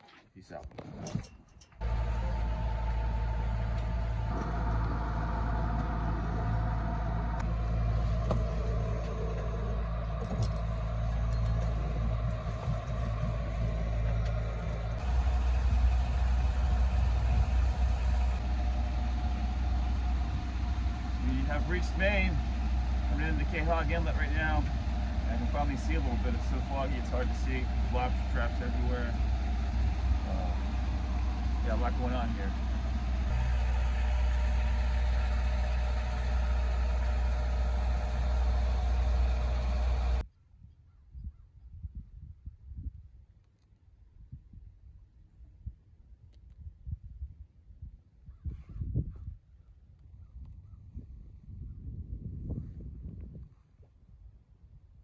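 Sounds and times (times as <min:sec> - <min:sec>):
boat engine running: 0:01.8 - 0:40.2.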